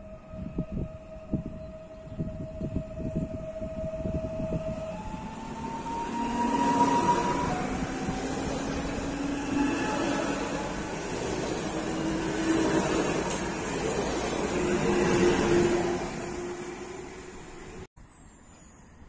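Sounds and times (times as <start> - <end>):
electric train whining: 0.0 - 17.9.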